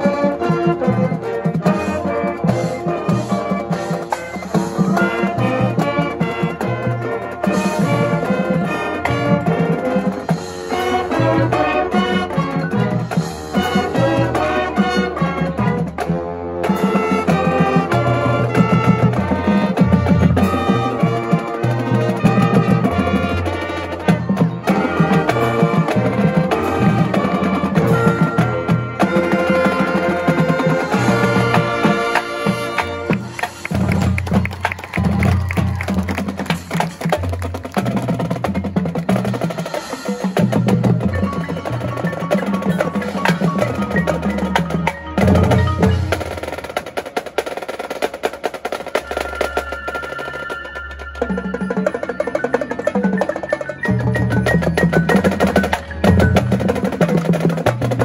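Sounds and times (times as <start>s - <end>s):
brass melody: 0.0s - 58.0s
marching drums: 0.0s - 58.0s
mallet percussion: 1.6s - 47.4s, 48.8s - 58.0s.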